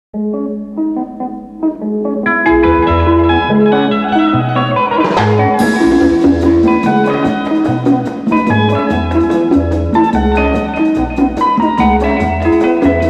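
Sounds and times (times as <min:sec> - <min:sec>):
instrumental music with bass: 0:00.2 - 0:13.0
drums with cymbal crash: 0:04.9 - 0:09.4.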